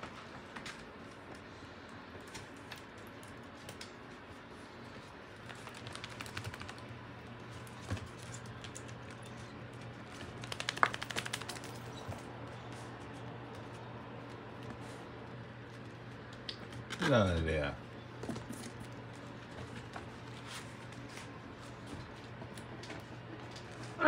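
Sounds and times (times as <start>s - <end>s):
puppy claws clicking on hardwood floor: 5.4s - 6.9s, 7.6s - 12.2s.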